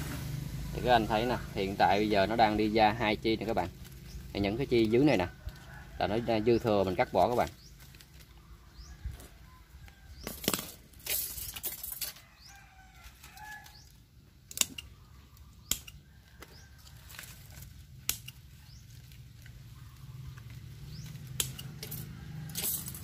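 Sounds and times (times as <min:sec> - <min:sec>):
leaves rustling: 0:00.0 - 0:23.0
pruning shears snipping: 0:13.2 - 0:16.1, 0:17.1 - 0:19.6, 0:20.3 - 0:23.0.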